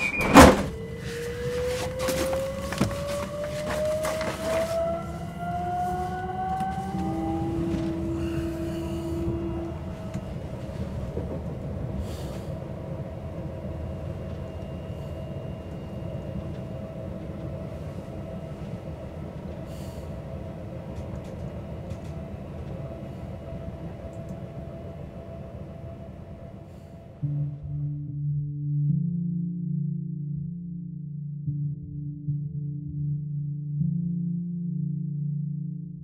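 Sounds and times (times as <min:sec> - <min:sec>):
train rumble inside carriage: 0:00.0 - 0:27.3
whining tone: 0:00.0 - 0:27.8
faint steady hum: 0:00.0 - 0:28.0.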